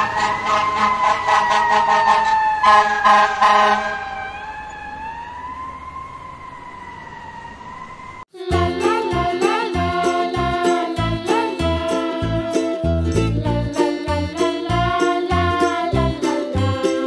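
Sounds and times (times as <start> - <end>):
fire engine siren wailing: 0.0 - 13.1
fast rhythmic beat: 8.5 - 17.0.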